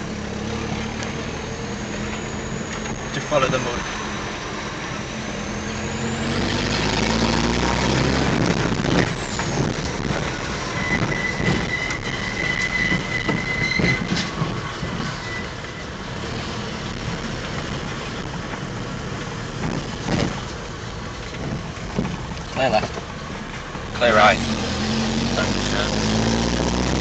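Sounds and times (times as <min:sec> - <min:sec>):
pickup engine revving: 0:00.0 - 0:15.0, 0:16.0 - 0:27.0
knocks and rattles over bumps: 0:08.3 - 0:16.0, 0:16.9 - 0:24.0
thin high squeal: 0:10.4 - 0:15.9.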